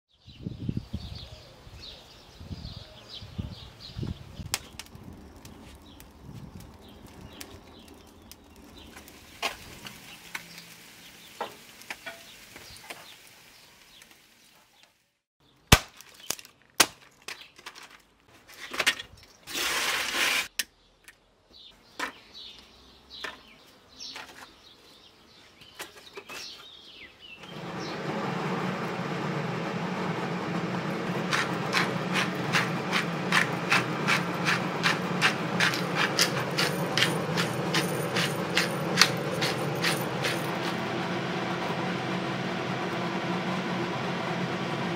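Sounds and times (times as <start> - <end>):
faint outdoor ambience: 16.9 - 44.9.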